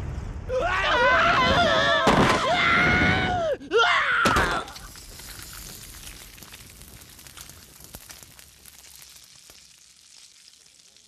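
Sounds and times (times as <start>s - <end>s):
flames crackling with pops: 4.2s - 11.0s.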